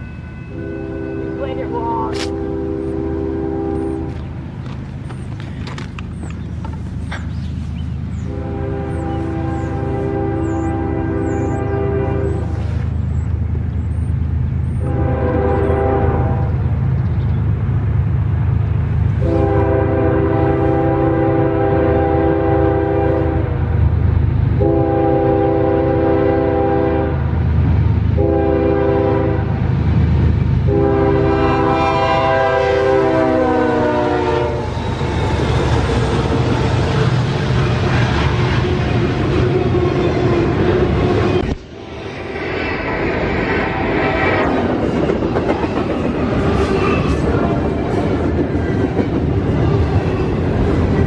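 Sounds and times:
train cars rumbling and clattering: 0.0 - 51.0
locomotive air horn blasts: 0.2 - 4.2, 8.2 - 12.8, 14.8 - 16.6, 19.2 - 23.6, 24.6 - 27.2, 28.2 - 29.6, 30.7 - 34.7
diesel engine rumble: 0.6 - 19.4.

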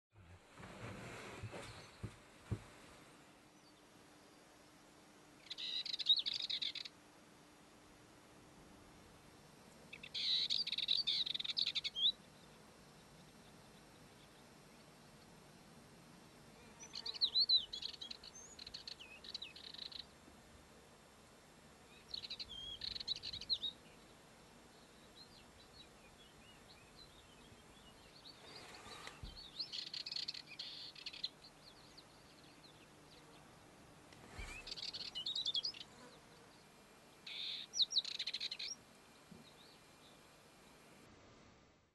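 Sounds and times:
soft bird twittering: 34.2 - 35.9, 37.3 - 38.8.

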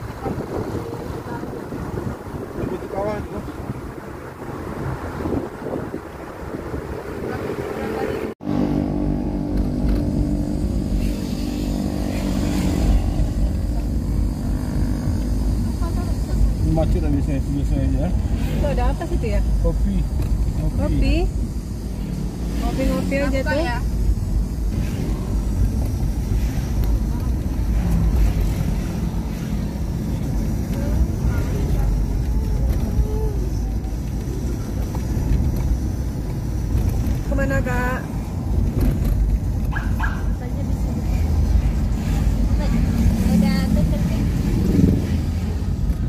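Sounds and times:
road rumble: 0.0 - 46.0
vehicle engine drone: 0.0 - 46.0.

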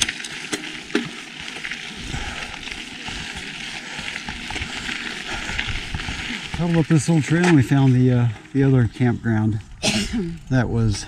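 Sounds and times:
sharp clicks and rattles: 0.0 - 1.7
bike tyres crackling on gravel: 0.0 - 9.8, 10.4 - 11.0.

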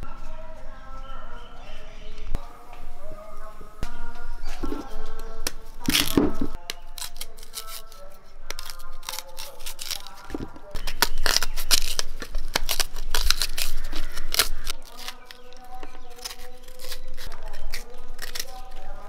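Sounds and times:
knife cutting and scraping roots: 4.5 - 19.0.

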